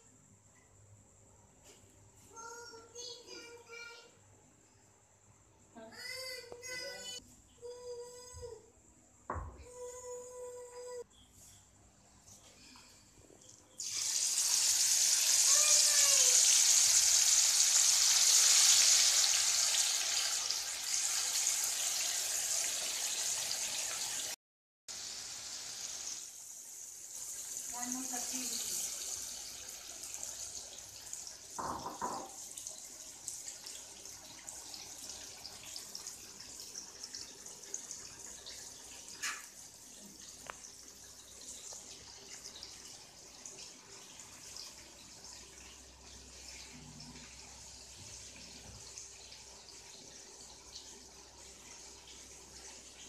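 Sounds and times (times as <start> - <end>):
fish sizzling in hot oil: 13.8 - 30.9
fish deep-frying in hot oil: 13.8 - 53.0.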